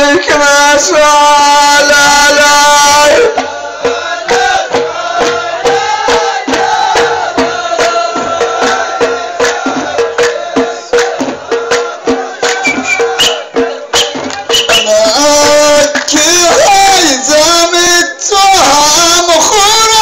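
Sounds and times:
men chanting in unison: 0:00.0 - 0:20.0
hand claps: 0:09.4 - 0:16.6.

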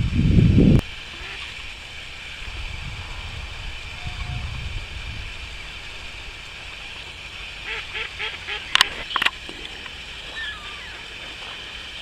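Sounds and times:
river water rushing: 0:00.8 - 0:12.0
duck quacking: 0:07.6 - 0:09.0.

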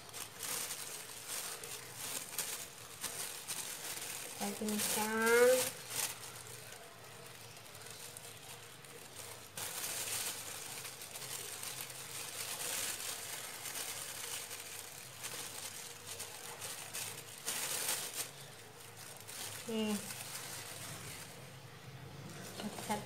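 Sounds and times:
plastic bag crinkling: 0:00.0 - 0:23.0.

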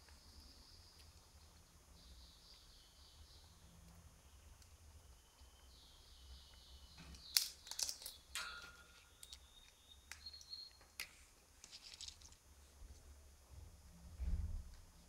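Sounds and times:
parrot whistling and clicking: 0:09.2 - 0:11.0.

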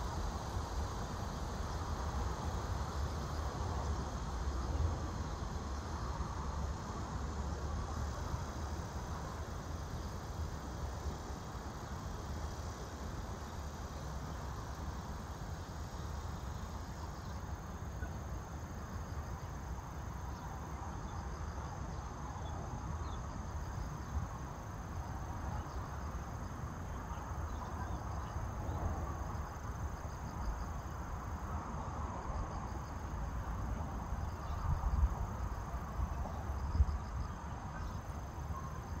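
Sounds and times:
insects trilling: 0:00.9 - 0:39.0.

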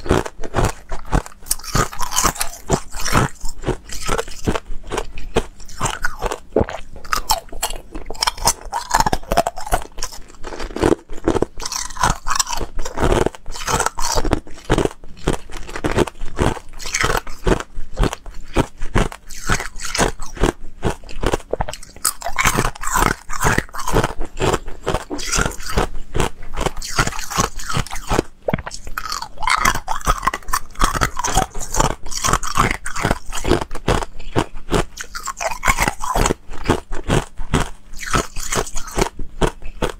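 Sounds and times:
ice cubes crunching in mouth: 0:00.0 - 0:39.9.

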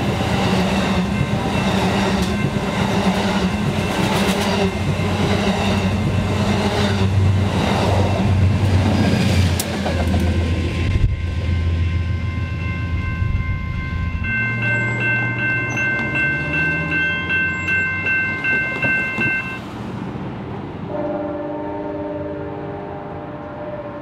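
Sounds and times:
train rumbling: 0:00.0 - 0:24.0
bell ringing rapidly: 0:11.5 - 0:19.6
train horn chord: 0:20.9 - 0:24.0.

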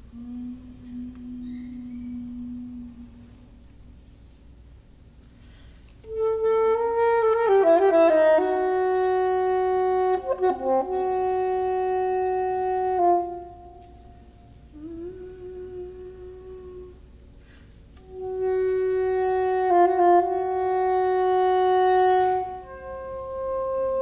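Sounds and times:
soprano saxophone playing: 0:06.0 - 0:24.0.

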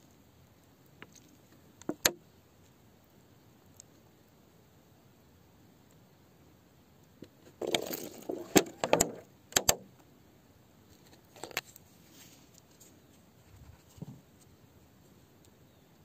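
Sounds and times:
handling rustling: 0:07.4 - 0:09.8
sharp clicks: 0:08.7 - 0:10.0.

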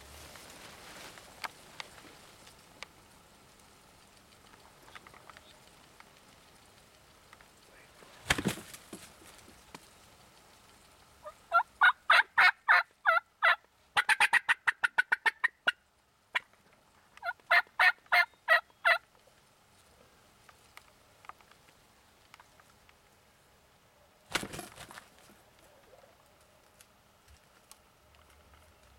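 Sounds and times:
turkey gobbling: 0:11.2 - 0:16.5, 0:17.2 - 0:19.0.

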